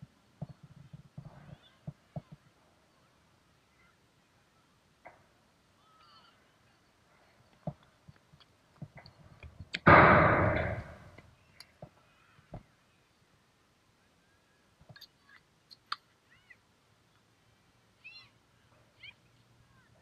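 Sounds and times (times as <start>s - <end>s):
loud crash near microphone: 9.8s - 11.2s.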